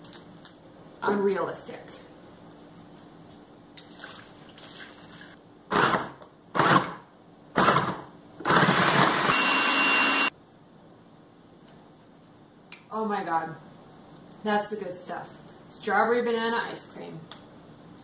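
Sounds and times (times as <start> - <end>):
food processor blending: 5.7 - 7.0, 7.6 - 10.3.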